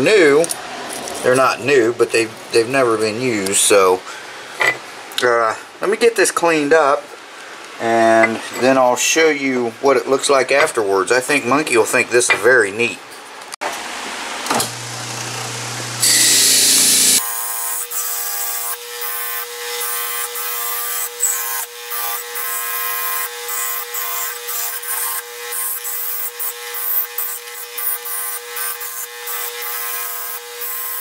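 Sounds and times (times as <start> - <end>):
electric motor humming: 14.6 - 31.0.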